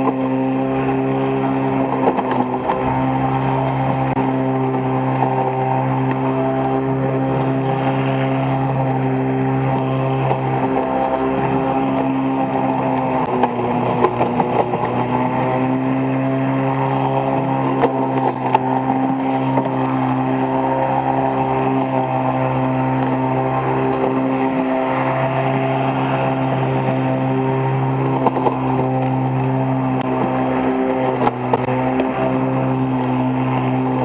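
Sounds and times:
electric lawn mower humming: 0:00.0 - 0:34.0.

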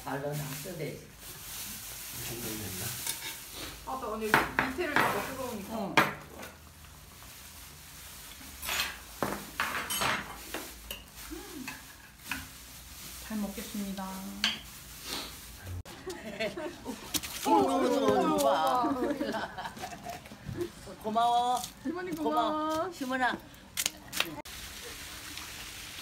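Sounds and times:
dishes and spoons clinking: 0:08.6 - 0:12.5.

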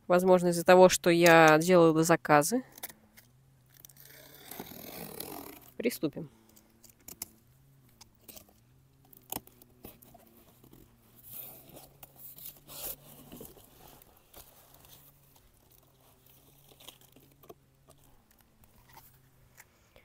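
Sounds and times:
clicks and rustles: 0:06.4 - 0:19.8.

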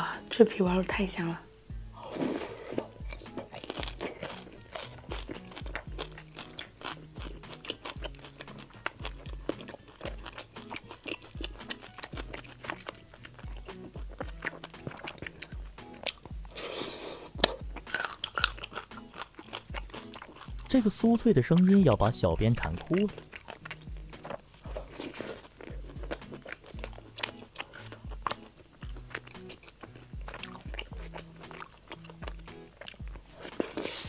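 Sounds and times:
background music: 0:00.0 - 0:34.0
crunching and chewing crispy pork: 0:01.9 - 0:34.0.

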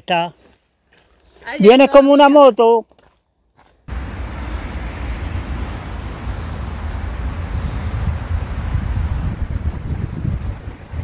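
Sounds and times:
wind buffeting microphone: 0:03.9 - 0:11.0.

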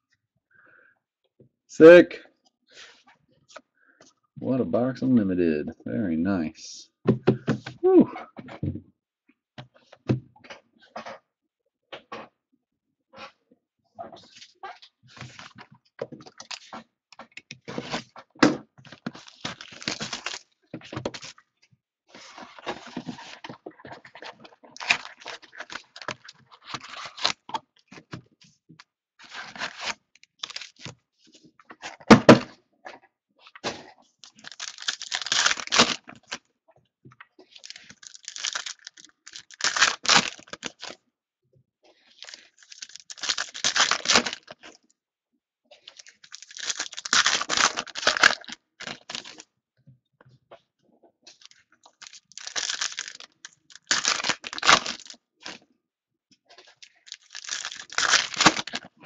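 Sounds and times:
foil wrappers crinkling and tearing: 0:19.2 - 0:20.5, 0:24.8 - 0:27.4, 0:29.2 - 0:30.9, 0:34.2 - 0:36.4, 0:37.5 - 0:41.0, 0:42.1 - 0:44.7, 0:45.8 - 0:49.4, 0:51.3 - 0:55.6, 0:56.6 - 0:58.9.

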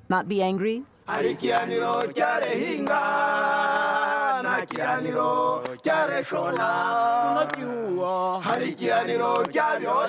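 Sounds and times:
hand claps: 0:01.1 - 0:03.0, 0:03.7 - 0:05.0, 0:05.6 - 0:06.8, 0:07.4 - 0:07.7, 0:08.4 - 0:09.8
men singing a cappella: 0:01.1 - 0:10.0.

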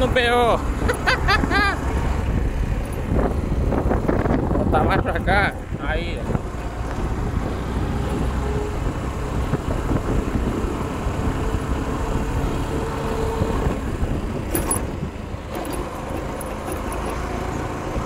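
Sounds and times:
motorcycle engine running: 0:00.0 - 0:18.0
tyre and wind noise: 0:00.0 - 0:18.0
light clicks or rattles: 0:14.4 - 0:17.6.

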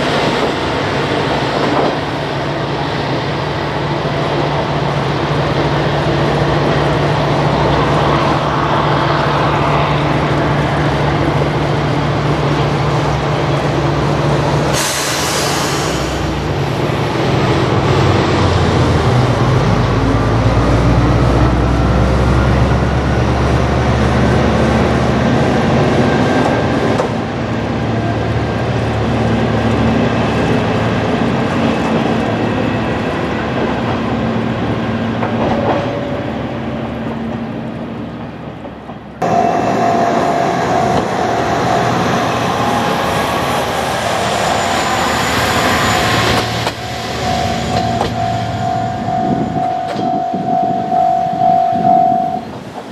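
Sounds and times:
diesel railcar engine pulling away: 0:00.0 - 0:52.9.

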